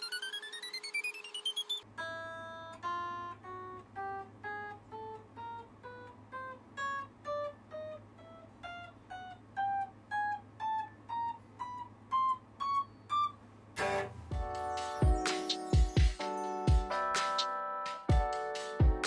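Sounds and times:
electric guitar plucked notes: 0:01.9 - 0:17.1.

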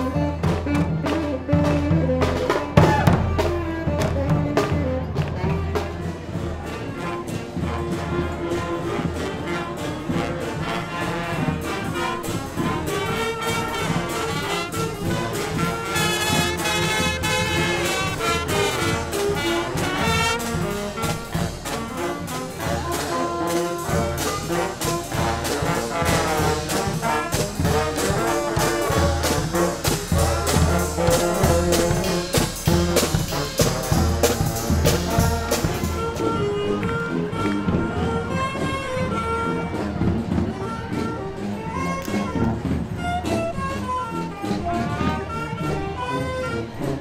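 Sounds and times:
steady drum beat: 0:00.0 - 0:06.7, 0:11.1 - 0:36.4
brass horns: 0:00.0 - 0:47.0
clarinet and saxophone: 0:00.0 - 0:47.0.

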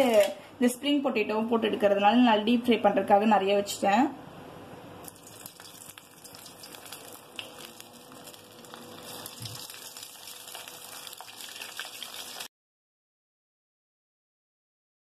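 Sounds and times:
food deep-frying in oil: 0:05.0 - 0:12.5.

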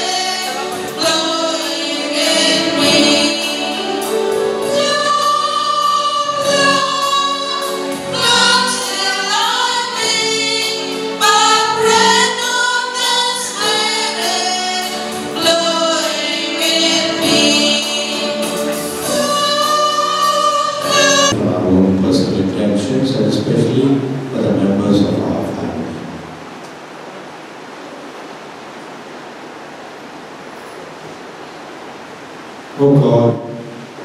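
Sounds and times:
church choir singing a hymn: 0:00.0 - 0:21.4.

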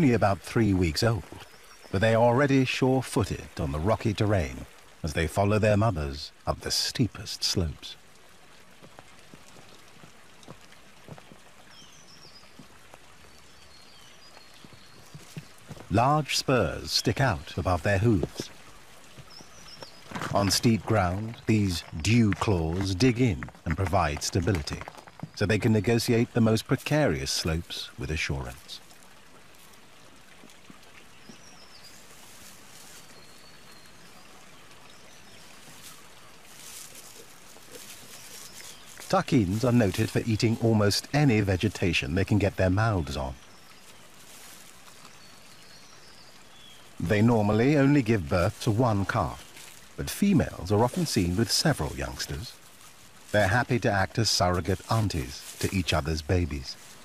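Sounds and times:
faint steady hiss: 0:00.0 - 0:57.0
faint rushing hiss: 0:34.9 - 0:41.3
soft irregular ticks: 0:35.4 - 0:42.0.

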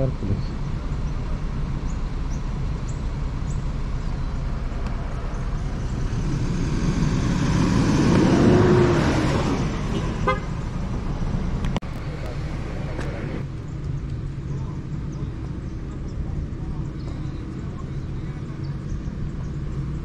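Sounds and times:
low engine rumble: 0:00.0 - 0:20.0
vehicle passing by: 0:03.8 - 0:13.5.

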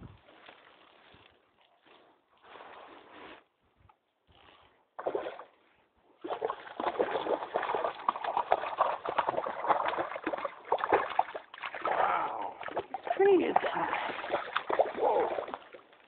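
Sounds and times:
water splashing and sloshing: 0:05.0 - 0:16.0.

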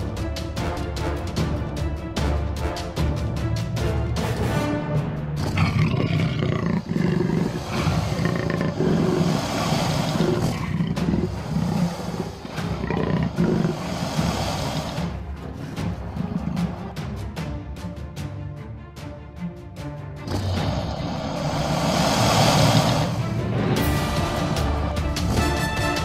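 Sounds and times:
jaguar growling and roaring: 0:05.4 - 0:17.2, 0:20.2 - 0:26.0.

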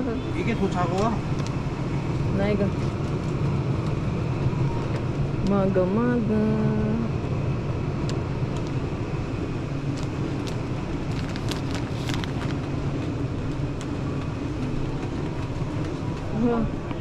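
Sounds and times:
shop background hum and rumble: 0:00.0 - 0:17.0
light clicks and crinkles: 0:09.9 - 0:14.3.

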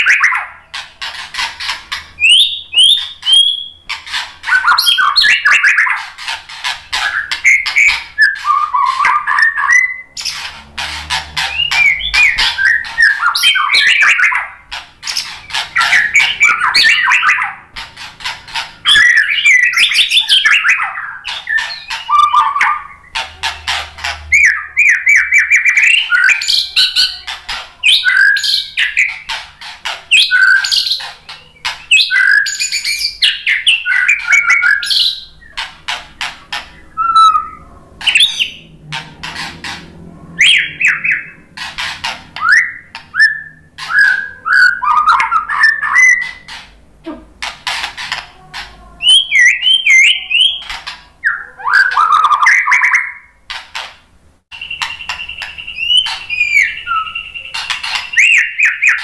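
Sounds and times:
bird singing whistled phrases: 0:02.2 - 0:03.8, 0:04.5 - 0:06.0, 0:07.0 - 0:10.3, 0:11.5 - 0:14.5, 0:18.8 - 0:23.2, 0:27.8 - 0:29.3, 0:30.1 - 0:35.5, 0:36.8 - 0:38.6, 0:42.4 - 0:46.5, 0:49.0 - 0:53.3, 0:54.5 - 0:59.0.

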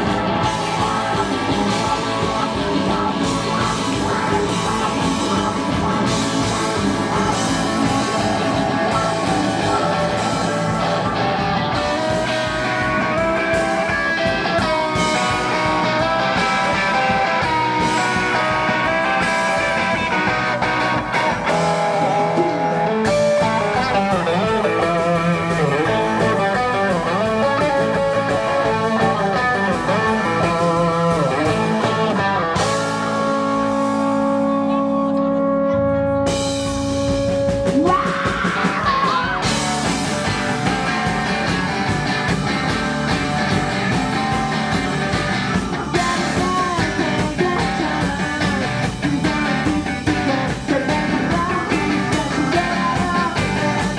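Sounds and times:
bass guitar: 0:00.0 - 0:53.9
electric guitar: 0:00.0 - 0:53.9
keyboard: 0:00.0 - 0:53.9.

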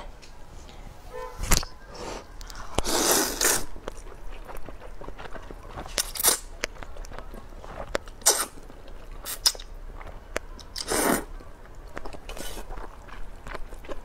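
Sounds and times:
wet chewing clicks: 0:02.4 - 0:14.0
noodles slurped: 0:02.5 - 0:05.2, 0:05.8 - 0:06.5, 0:07.7 - 0:09.8, 0:10.6 - 0:14.0.

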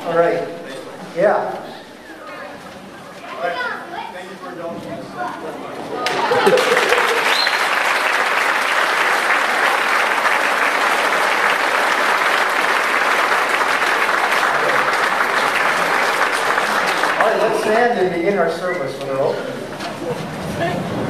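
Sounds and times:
audience applause: 0:06.0 - 0:18.2.

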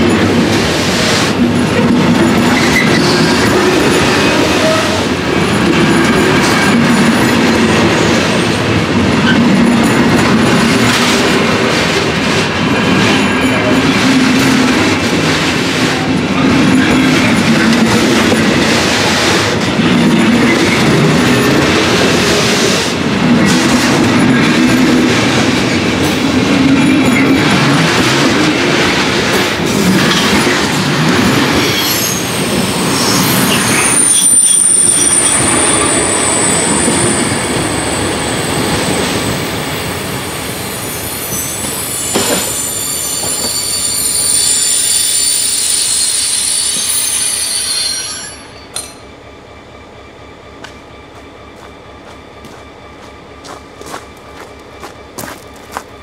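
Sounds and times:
train wheels rumbling on rails: 0:00.0 - 0:56.0
high wheel squeal: 0:02.3 - 0:05.1, 0:31.2 - 0:49.0.

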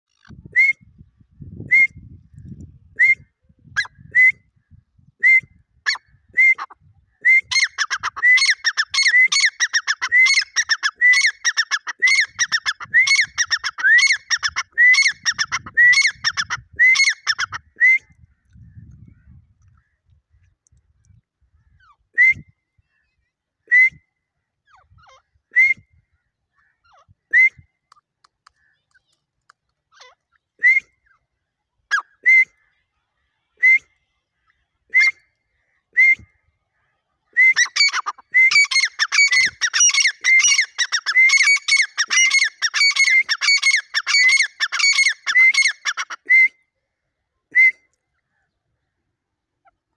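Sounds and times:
francolin calling: 0:37.6 - 0:46.1.

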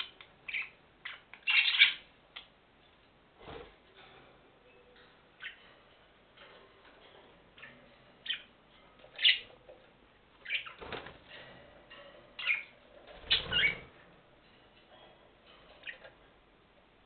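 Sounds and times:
budgerigars chirping: 0:00.0 - 0:02.1, 0:09.2 - 0:09.5, 0:10.4 - 0:10.8, 0:12.4 - 0:13.8.

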